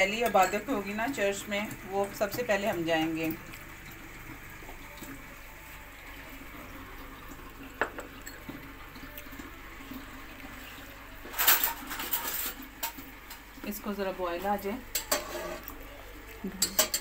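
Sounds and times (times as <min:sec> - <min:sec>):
faint kitchen hiss: 0:00.0 - 0:17.0
clattering and rustling: 0:11.3 - 0:13.4.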